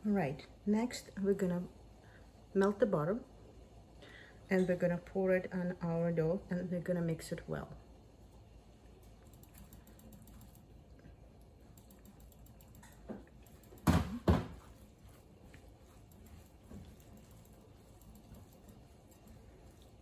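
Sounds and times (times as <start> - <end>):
hands rustling dry dough: 14.6 - 20.0.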